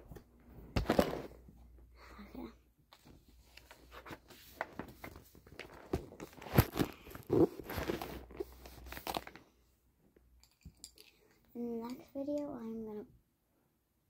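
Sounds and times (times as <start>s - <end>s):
paper rustling: 3.0s - 9.4s.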